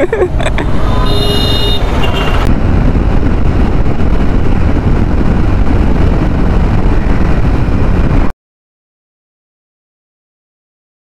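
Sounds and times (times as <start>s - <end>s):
motorcycle engine and road rumble: 0.0s - 8.3s
wind on microphone: 0.0s - 8.3s.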